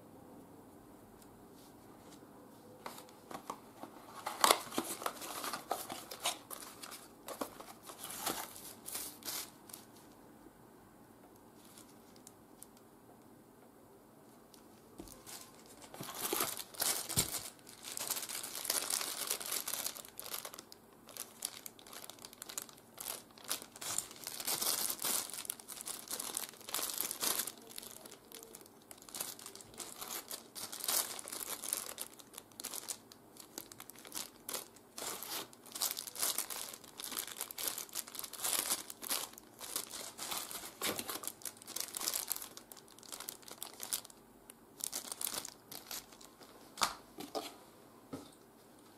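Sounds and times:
plastic bag crinkling: 0:02.9 - 0:09.9, 0:15.0 - 0:44.2, 0:44.8 - 0:46.4.

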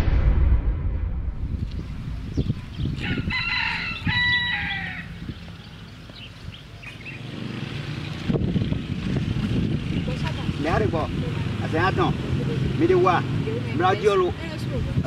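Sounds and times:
low outdoor rumble: 0:00.0 - 0:15.0
rooster crowing: 0:03.0 - 0:05.2.

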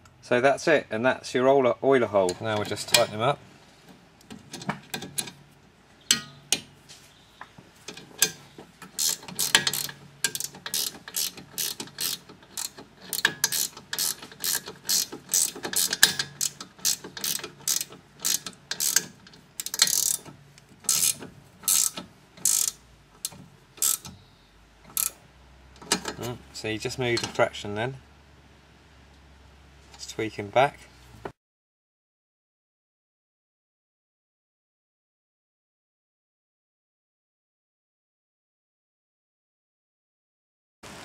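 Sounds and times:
metal spanner clicking: 0:06.1 - 0:06.7, 0:07.9 - 0:24.2, 0:24.9 - 0:25.2, 0:25.8 - 0:26.4.

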